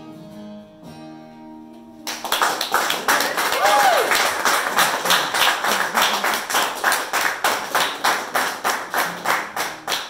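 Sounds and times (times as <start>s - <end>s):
hand claps: 2.0s - 10.0s.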